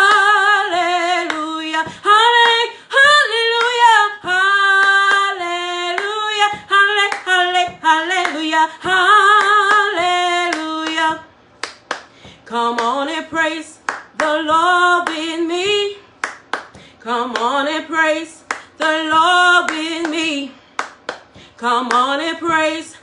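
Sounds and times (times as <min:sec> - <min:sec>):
woman singing gospel song: 0:00.0 - 0:11.3, 0:12.2 - 0:23.0
hands clapping: 0:07.1 - 0:08.5, 0:09.3 - 0:13.0, 0:13.8 - 0:14.4, 0:16.2 - 0:17.5, 0:18.4 - 0:18.7, 0:20.8 - 0:22.1.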